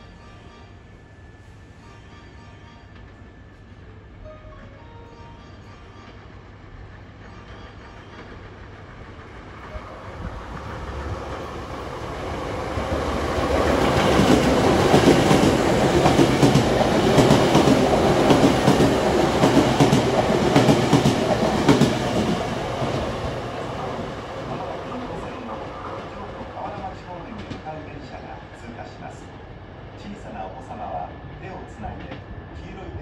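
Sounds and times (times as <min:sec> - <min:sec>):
electric train passing: 0:00.0 - 0:33.0
train wheels clacking over rail joints: 0:13.6 - 0:23.0.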